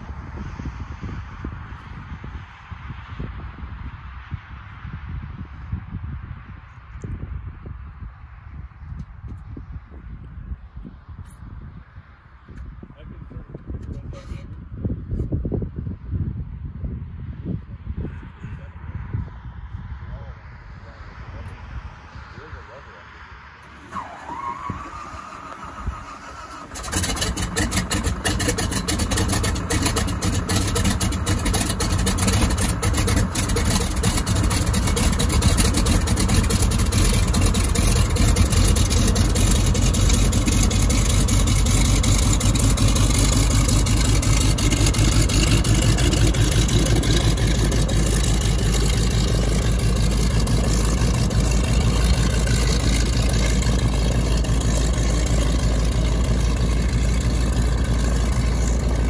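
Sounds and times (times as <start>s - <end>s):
radial aircraft engine starting: 23.6s - 59.0s.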